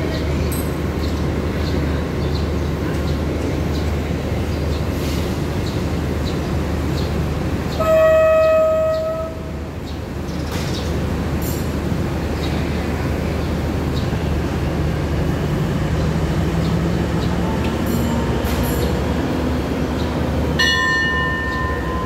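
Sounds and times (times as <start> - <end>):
diesel train idling: 0.0 - 22.0
train horn: 7.7 - 9.6.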